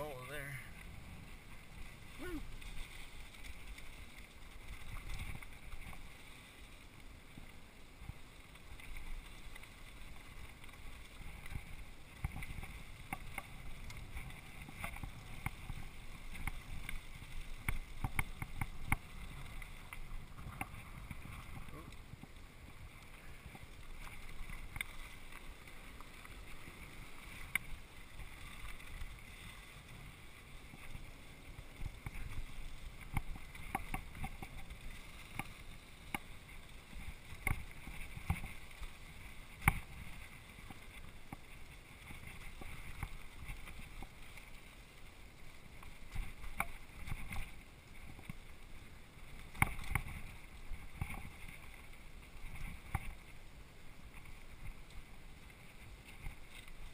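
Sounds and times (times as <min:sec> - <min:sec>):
bike clicking and rattling: 0:10.5 - 0:26.8, 0:31.6 - 0:38.6.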